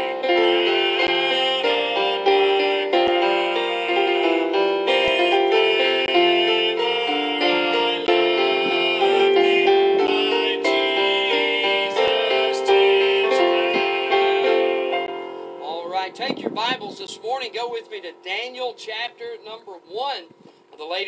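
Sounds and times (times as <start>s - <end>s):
electric keyboard piano melody: 0.0s - 20.0s.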